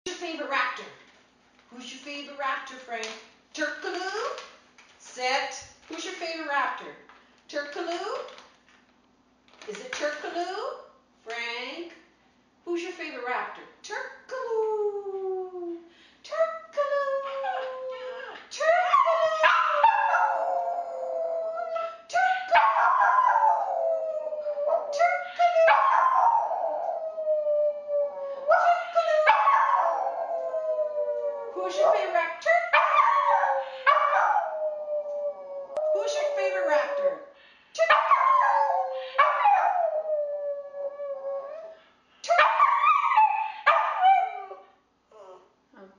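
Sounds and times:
puppy howling: 18.9s - 21.9s.

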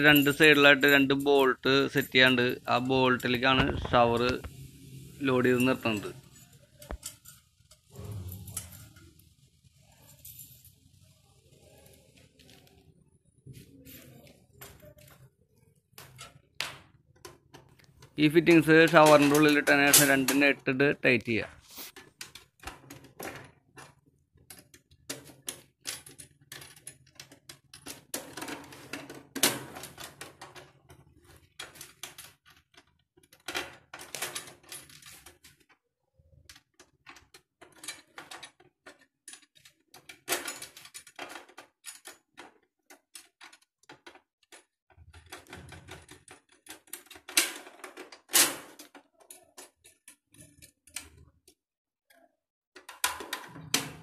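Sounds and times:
metallic clicks and rattling: 36.5s - 51.6s.

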